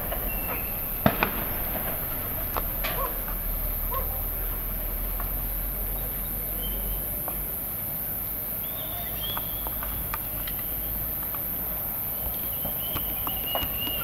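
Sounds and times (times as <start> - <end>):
distant gunfire cracks: 0.0 - 4.2
high whistle-like tones: 0.0 - 4.2
low rumble: 0.0 - 5.9.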